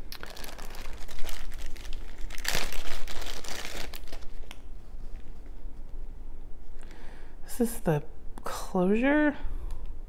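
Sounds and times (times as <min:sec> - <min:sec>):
plastic bag crinkling: 0:00.0 - 0:04.6.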